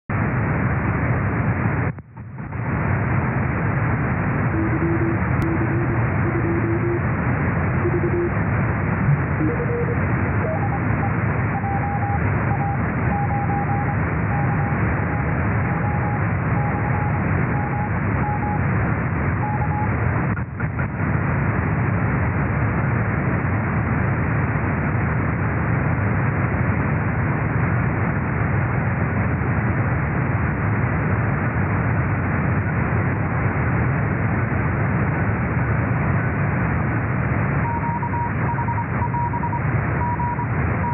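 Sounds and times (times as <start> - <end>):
radio receiver hiss: 0.2 - 22.1
morse code tone: 4.5 - 7.1, 7.7 - 8.4, 9.1 - 18.6, 19.4 - 19.9, 37.6 - 40.9.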